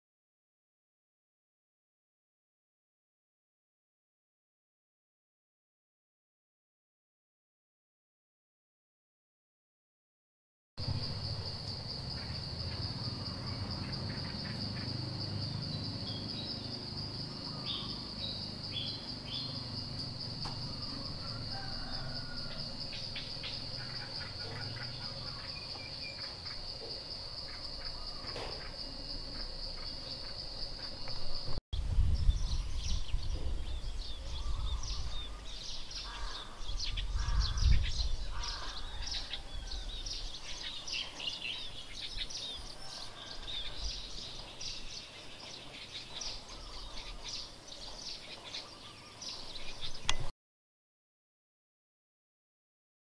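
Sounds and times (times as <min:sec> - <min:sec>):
bird chirps: 0:10.8 - 0:31.6, 0:32.2 - 0:50.3
insect drone: 0:10.8 - 0:50.3.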